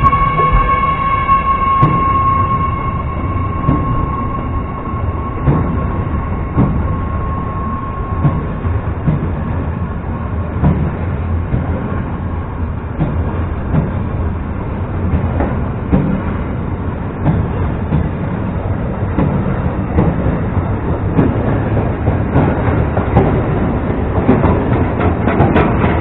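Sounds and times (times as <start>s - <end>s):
steady high tone: 0.0s - 10.6s
train wheels rumbling on rail: 0.0s - 26.0s.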